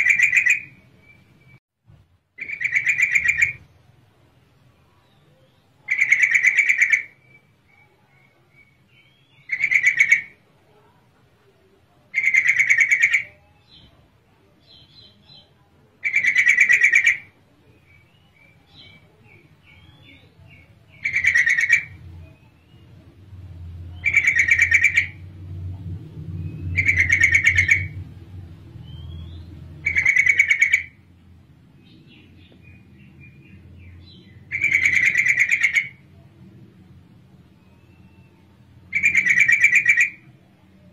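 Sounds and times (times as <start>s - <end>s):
bird harsh buzzy chatters: 5.9s - 7.2s, 20.9s - 22.1s, 24.0s - 25.3s, 26.8s - 28.0s, 29.8s - 31.0s, 34.4s - 36.0s
low rumble: 21.9s - 29.9s.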